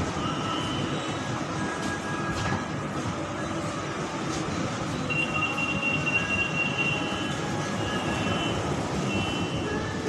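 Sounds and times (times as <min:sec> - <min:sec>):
train rumble inside carriage: 0:00.0 - 0:10.0
high squeal from train wheels: 0:00.1 - 0:02.2, 0:05.0 - 0:10.0.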